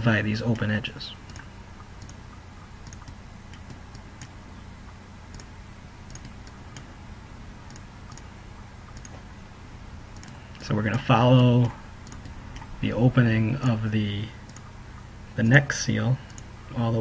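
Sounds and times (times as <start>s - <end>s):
low steady hum: 0.0s - 17.0s
computer mouse clicking: 1.3s - 5.5s, 6.1s - 6.9s, 7.7s - 8.3s, 8.9s - 9.2s, 10.1s - 12.7s, 14.5s - 14.7s, 16.3s - 16.5s.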